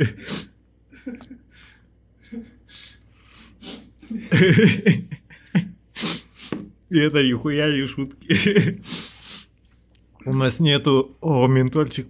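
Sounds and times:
person laughing: 0.0 - 2.7, 3.6 - 6.3, 8.3 - 9.1
person snickering: 0.0 - 6.6.

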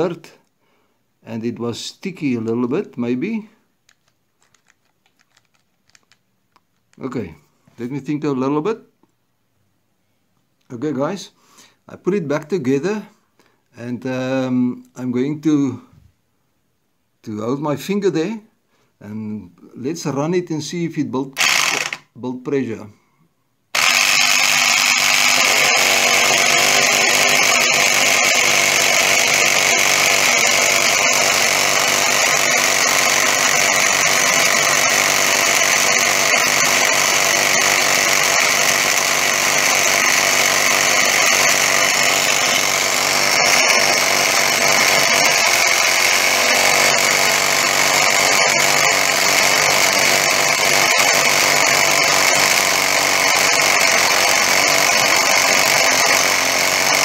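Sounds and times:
electric air compressor running: 21.4 - 22.0, 23.8 - 57.0.

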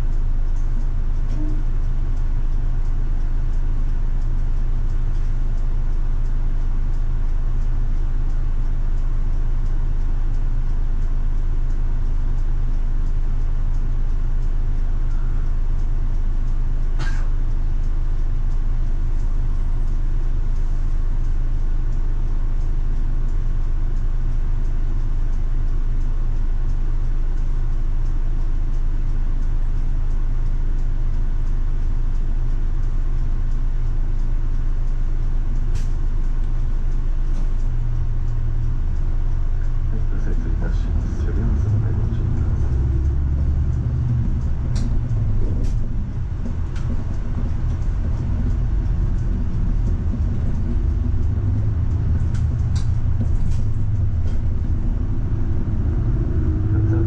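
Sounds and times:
bus engine hum and road rumble: 0.0 - 57.0
sharp click: 35.7 - 36.7.

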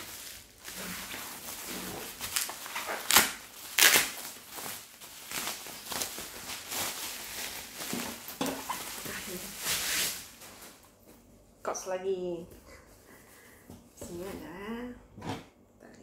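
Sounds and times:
bubble wrap crinkling: 0.0 - 11.1.

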